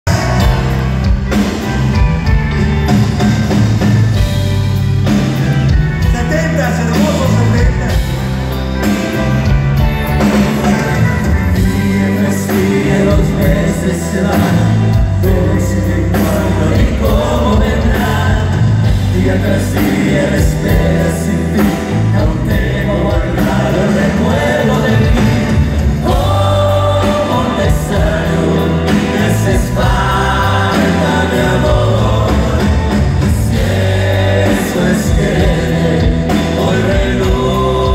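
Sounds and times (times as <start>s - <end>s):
live band playing: 0.0s - 37.9s
men singing: 11.4s - 37.9s.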